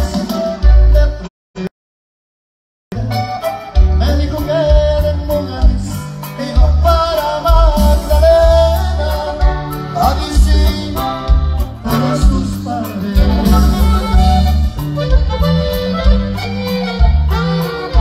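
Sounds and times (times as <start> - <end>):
accordion-led band music: 0.0 - 1.7, 2.9 - 18.0
person singing: 2.9 - 14.6.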